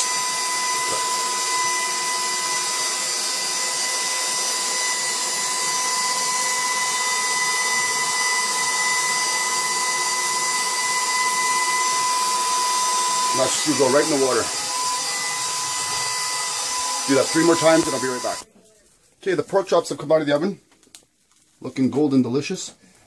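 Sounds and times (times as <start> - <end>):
stand mixer motor whine: 0.0 - 18.4.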